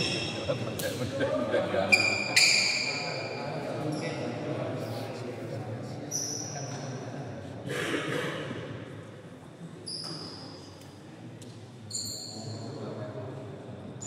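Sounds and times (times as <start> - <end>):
voices: 0.0 - 7.2
shoes squeaking on court: 9.8 - 10.8, 11.8 - 12.6.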